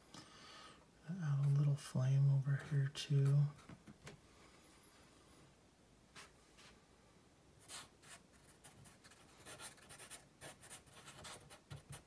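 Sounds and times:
marker scratching on paper: 7.6 - 12.0.

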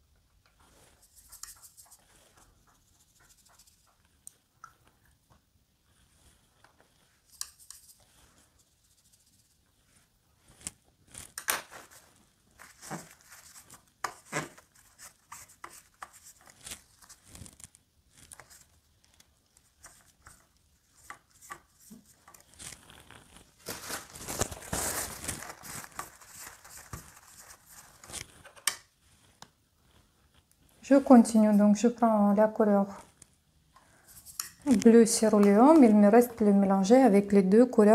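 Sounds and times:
paintbrush scrubbing and tapping: 0.5 - 23.4, 25.2 - 28.5, 33.8 - 36.2.

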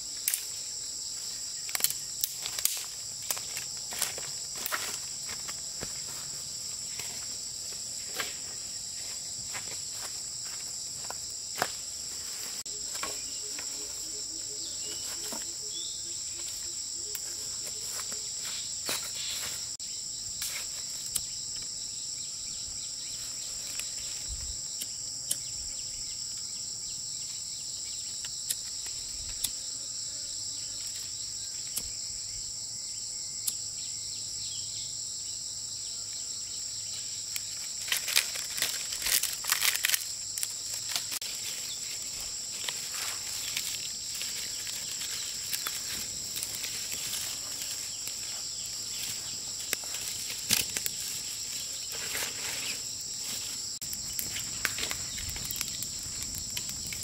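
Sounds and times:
insect chorus shrilling: 0.0 - 57.0
dry branches snapping: 0.2 - 0.5, 1.7 - 5.0, 37.5 - 48.3, 49.0 - 52.4, 53.9 - 57.0.

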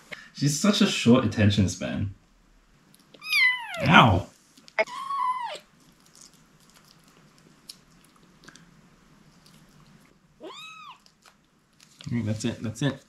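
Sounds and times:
kitten meowing: 3.2 - 3.9, 10.4 - 11.0
small clicks and rustles: 5.8 - 8.7, 10.8 - 12.5.

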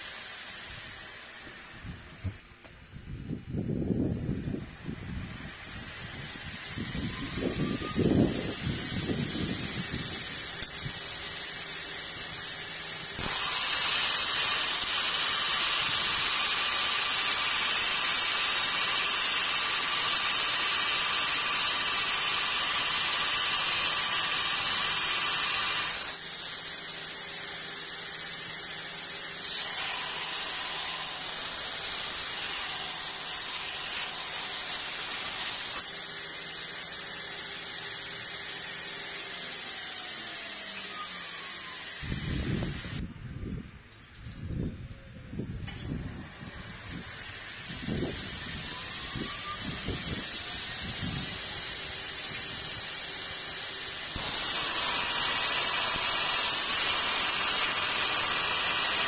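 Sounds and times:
belt grinder hissing: 0.0 - 2.5, 3.8 - 43.0, 45.6 - 59.0
steel bar grinding on belt: 5.4 - 36.0, 47.1 - 59.0.

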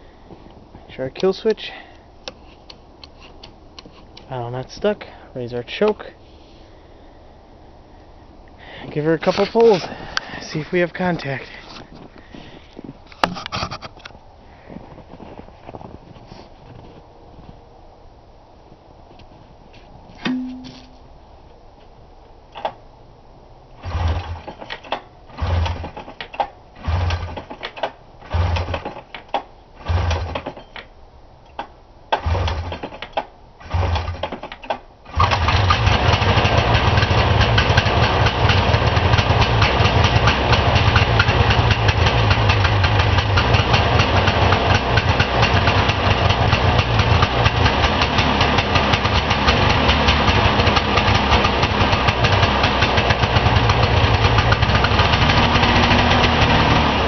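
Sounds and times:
two-stroke engine running: 23.8 - 24.5, 28.2 - 28.9, 29.8 - 30.5, 35.2 - 57.0
recoil starter rope pulls: 23.8 - 30.7, 32.1 - 57.0.

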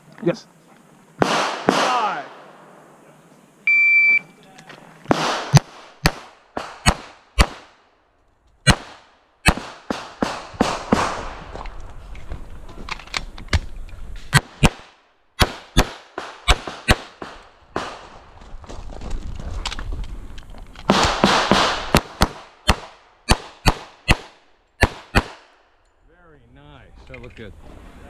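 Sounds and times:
pistol shots: 1.2 - 2.8, 5.1 - 7.8, 8.6 - 11.4, 14.3 - 18.2, 20.9 - 25.5.

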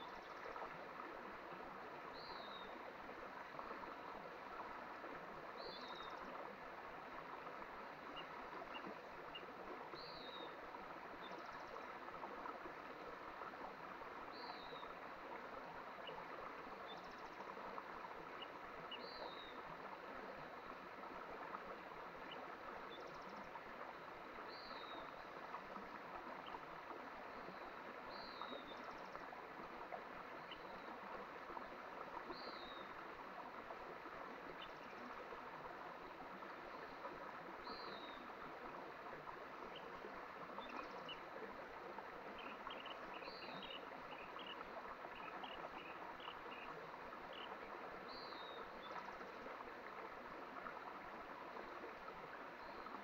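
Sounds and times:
mountain stream flowing: 0.0 - 53.0.

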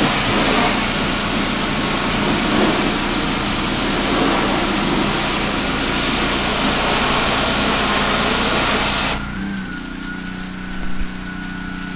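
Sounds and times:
pressure washer engine running: 0.0 - 11.9
pressure washer spraying water: 0.0 - 11.9.

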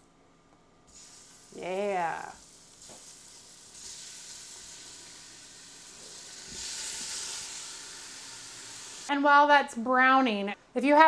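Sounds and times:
beef sizzling in oil: 0.9 - 9.1.

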